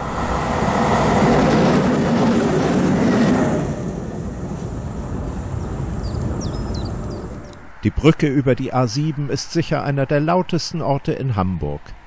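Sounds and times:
locomotive wheels rumbling on rails: 0.0 - 8.2
motorway traffic rumble: 0.0 - 10.5.

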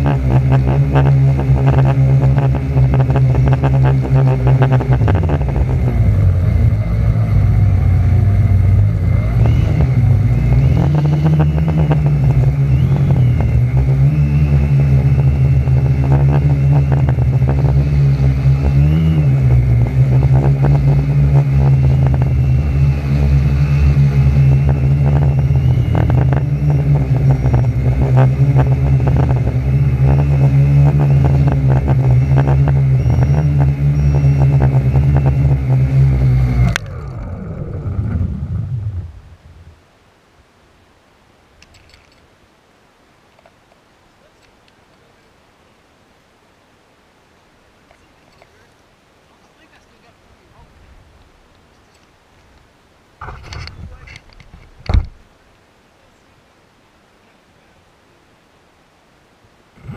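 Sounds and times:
quadcopter propellers droning: 0.0 - 39.2.

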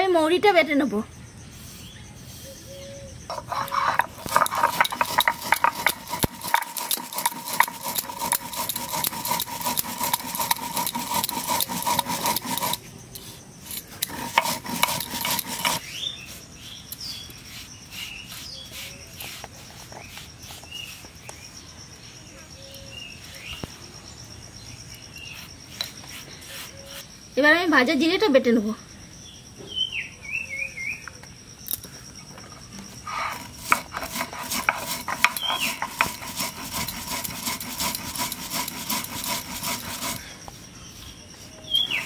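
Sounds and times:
seeds ground on stone: 1.5 - 21.5, 25.3 - 27.1, 31.7 - 42.0
powder brushing on stone: 1.6 - 2.6, 3.3 - 21.2, 25.3 - 27.1, 33.0 - 42.0.

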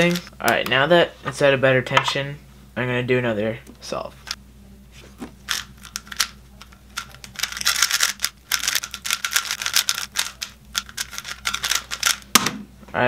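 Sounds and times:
speed cube clicking: 7.0 - 12.3.

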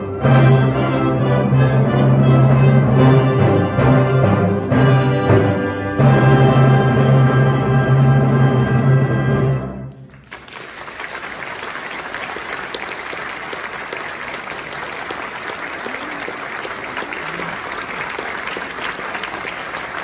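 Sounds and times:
audience applause: 10.0 - 20.0.

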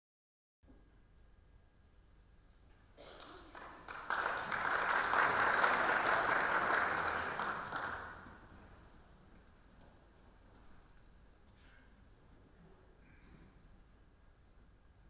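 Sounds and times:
audience applause: 3.0 - 8.5.

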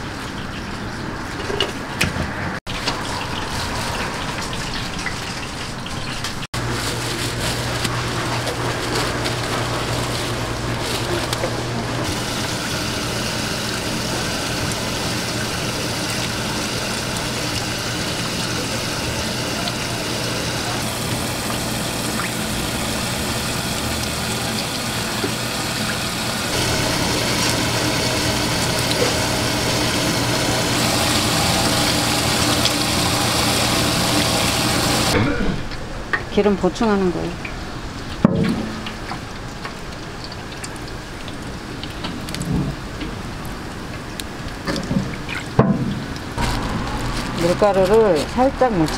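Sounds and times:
low machine hum: 6.6 - 42.0.

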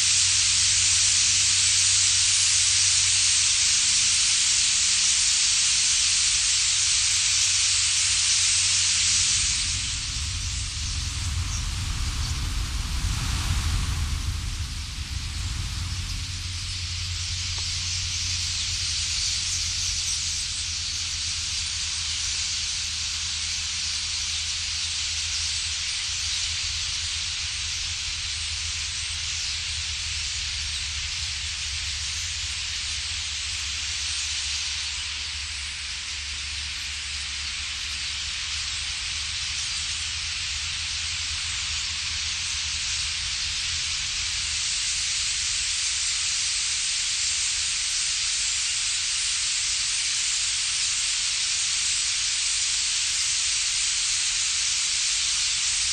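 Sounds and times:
starling flock calling: 6.4 - 26.9
low rumble: 8.6 - 21.8.

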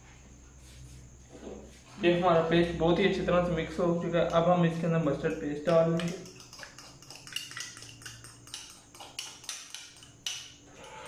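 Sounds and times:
fork scraping a bowl: 6.0 - 11.0.

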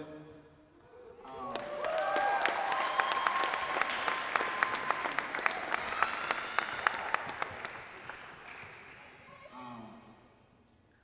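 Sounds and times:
voices cheering: 1.2 - 9.5
audience applauding: 1.4 - 9.5.

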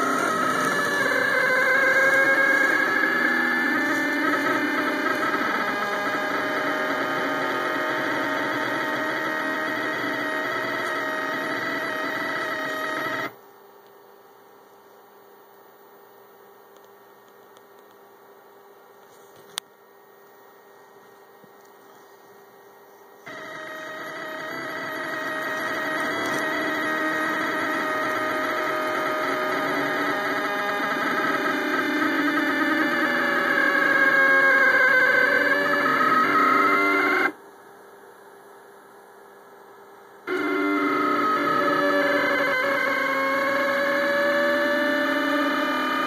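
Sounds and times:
stepper motors whining: 0.0 - 13.4, 23.3 - 37.4, 40.2 - 46.0
faint hum: 0.0 - 46.0.

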